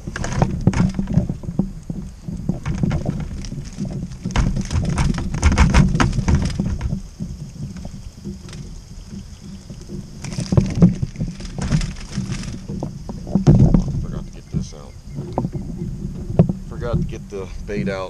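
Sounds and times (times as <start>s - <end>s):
crab trap clattering knocks: 2.4s - 9.3s.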